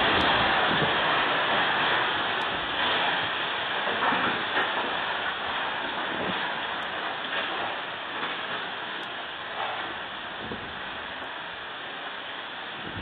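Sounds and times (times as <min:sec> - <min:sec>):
rain: 0:00.0 - 0:13.0
storm wind rushing through trees: 0:00.0 - 0:13.0.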